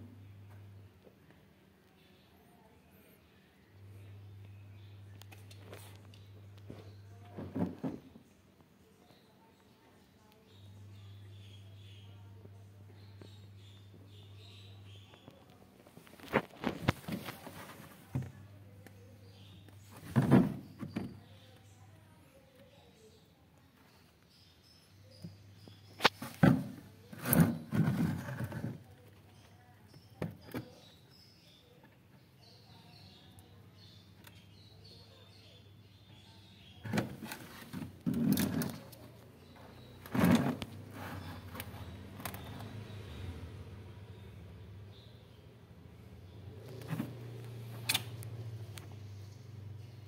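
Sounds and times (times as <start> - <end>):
faint low hum: 0.0 - 50.0
phone scraping and bumping: 40.0 - 42.4.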